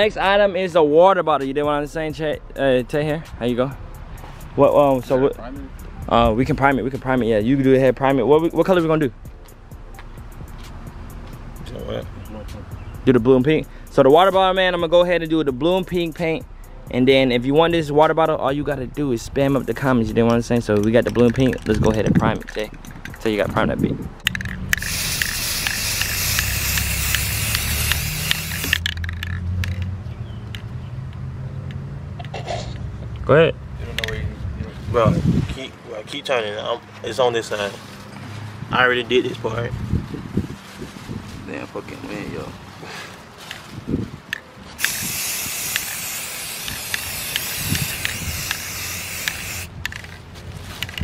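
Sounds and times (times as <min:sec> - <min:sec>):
aerosol can spraying: 0:24.5 - 0:29.0, 0:44.8 - 0:50.1.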